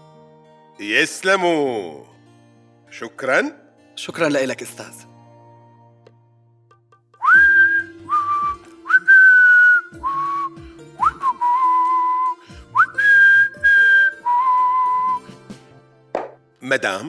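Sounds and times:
whistled tune: 0:07.2 - 0:15.4.

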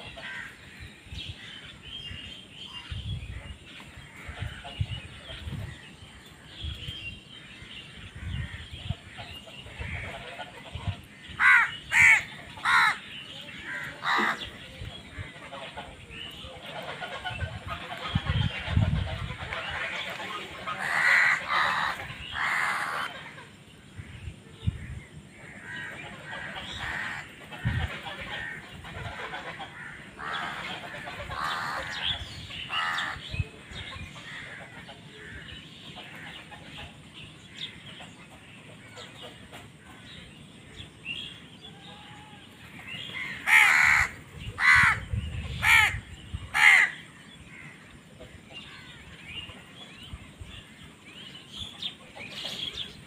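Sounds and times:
crows cawing: 0:00.2 - 0:00.6, 0:11.4 - 0:14.6, 0:20.8 - 0:23.1, 0:25.6 - 0:27.3, 0:29.7 - 0:30.6, 0:31.4 - 0:32.0, 0:32.7 - 0:33.2, 0:43.2 - 0:45.0, 0:45.6 - 0:47.8.

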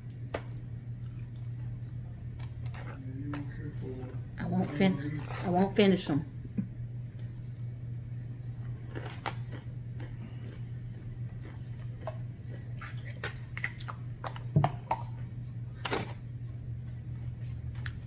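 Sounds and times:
person chewing food: 0:00.0 - 0:04.4, 0:08.6 - 0:18.0
steady low hum: 0:00.0 - 0:18.0.

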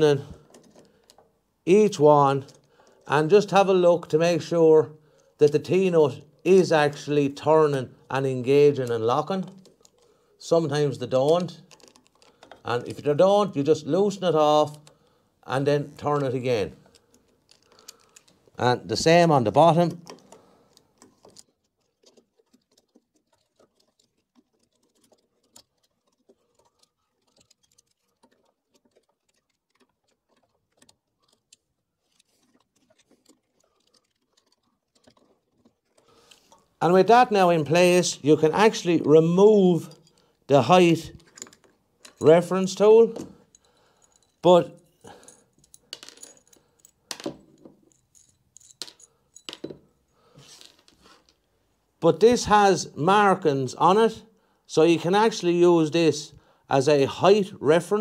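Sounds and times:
small metal parts clinking: 0:11.2 - 0:12.7, 0:15.9 - 0:36.8, 0:39.8 - 0:40.5, 0:41.1 - 0:42.4, 0:43.1 - 0:51.4.

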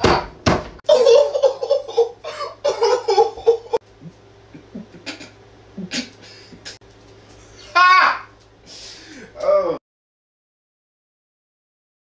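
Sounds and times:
man laughing hard: 0:00.9 - 0:03.8, 0:04.5 - 0:06.8.

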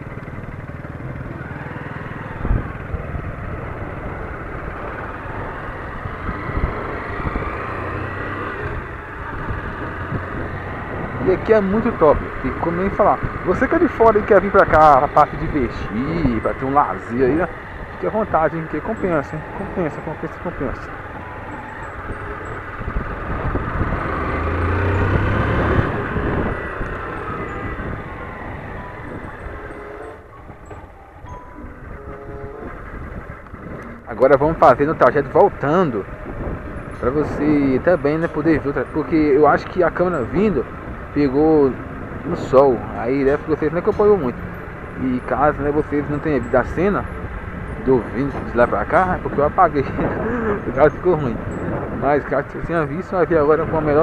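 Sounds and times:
motorcycle engine running: 0:00.0 - 0:20.2
wind noise on microphone: 0:02.3 - 0:03.4, 0:05.3 - 0:11.5, 0:21.0 - 0:29.8, 0:30.4 - 0:34.7, 0:35.6 - 0:37.8, 0:47.1 - 0:54.0.

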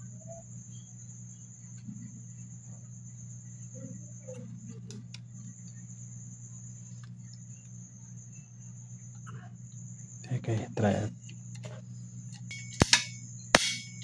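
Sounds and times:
steady low hum: 0:00.0 - 0:14.0
high-pitched whine: 0:12.0 - 0:14.0.

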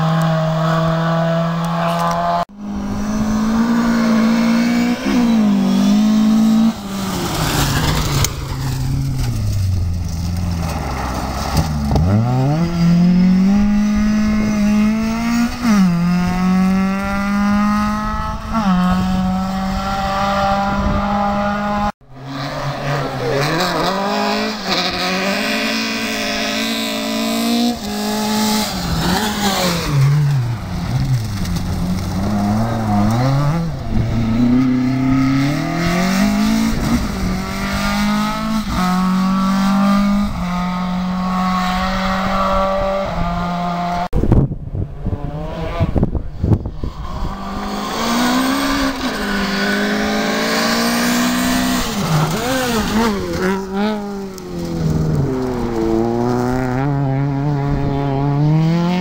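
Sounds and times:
rally car engine revving: 0:00.0 - 0:59.0.

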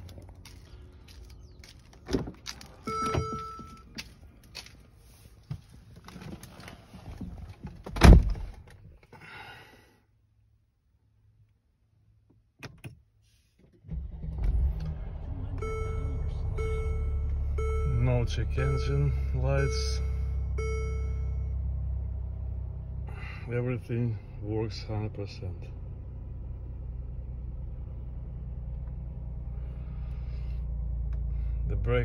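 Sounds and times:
car engine starting: 0:13.4 - 0:32.0.

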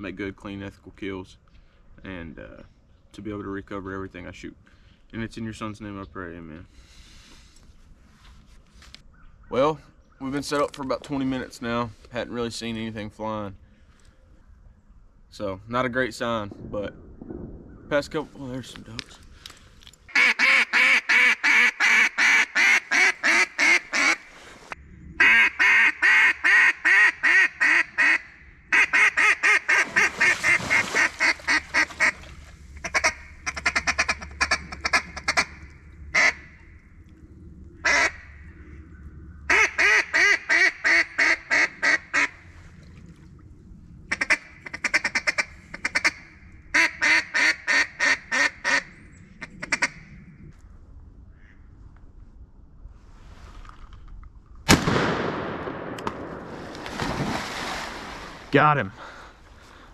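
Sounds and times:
duck call quacks: 0:20.1 - 0:24.3, 0:25.2 - 0:30.1, 0:39.5 - 0:42.3.

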